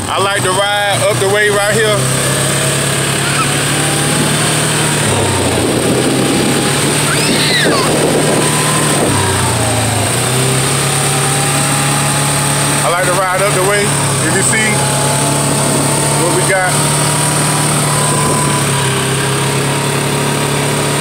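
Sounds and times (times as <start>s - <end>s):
quad bike engine running: 0.0s - 21.0s.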